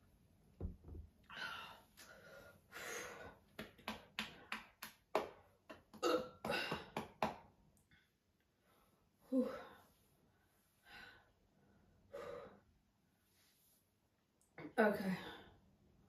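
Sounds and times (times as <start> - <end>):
woman breathing hard: 1.3 - 3.5.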